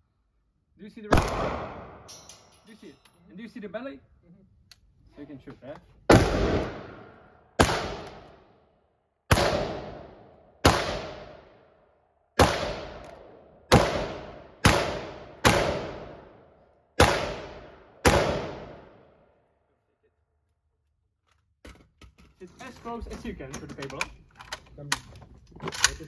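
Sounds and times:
rifle shots with echo: 0:01.1 - 0:02.1, 0:06.1 - 0:08.5, 0:09.3 - 0:11.7, 0:12.4 - 0:19.2.

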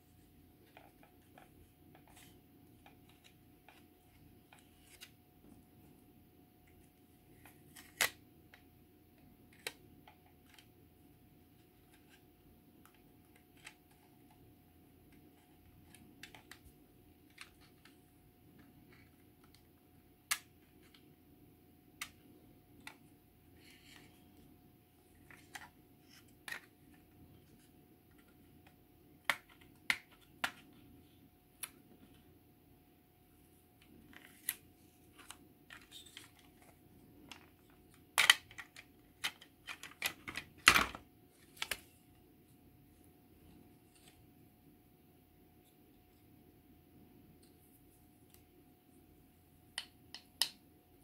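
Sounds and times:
faint steady hum: 0:00.0 - 0:51.0
plastic parts clicking: 0:15.1 - 0:18.0, 0:35.2 - 0:41.9.

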